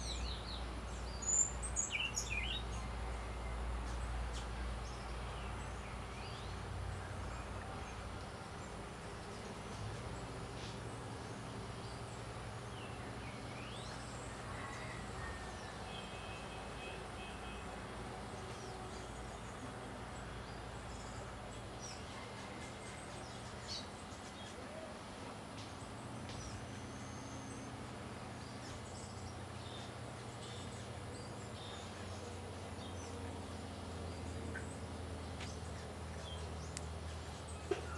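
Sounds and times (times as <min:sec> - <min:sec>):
high bird and insect chirps: 0:00.0 - 0:14.9
steady hiss and hum: 0:00.0 - 0:37.9.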